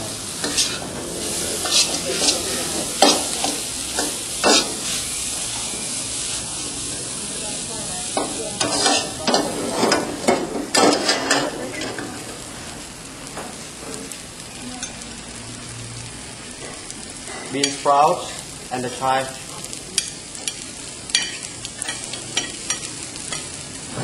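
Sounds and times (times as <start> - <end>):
noodles sizzling in a wok: 0.0 - 24.0
metal spatula scraping a wok: 0.3 - 6.2, 8.6 - 12.0.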